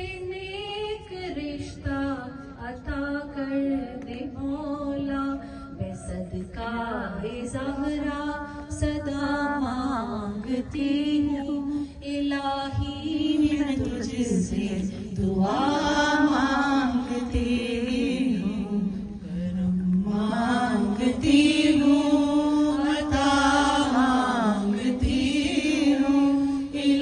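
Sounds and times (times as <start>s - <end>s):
women chanting unaccompanied: 0.0s - 27.0s.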